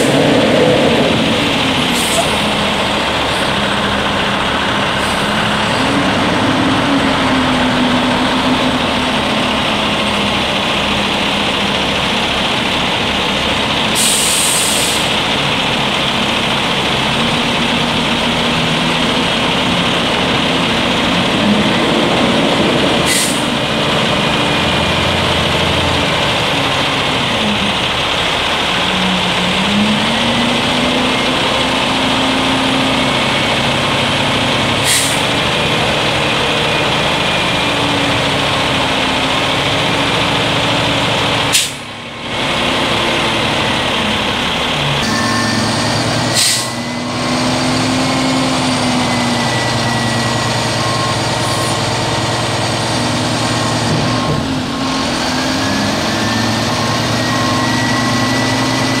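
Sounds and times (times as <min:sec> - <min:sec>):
garbage truck engine under load: 0:00.0 - 0:59.0.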